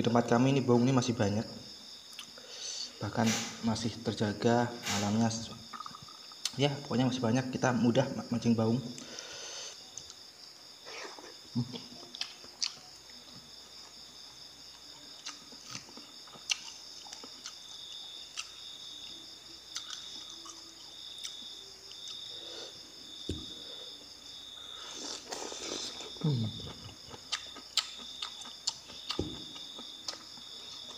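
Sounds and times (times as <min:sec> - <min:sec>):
insects chirring: 0:00.0 - 0:30.9
person chewing: 0:04.9 - 0:06.6, 0:10.9 - 0:13.2, 0:14.7 - 0:23.7, 0:24.8 - 0:30.9.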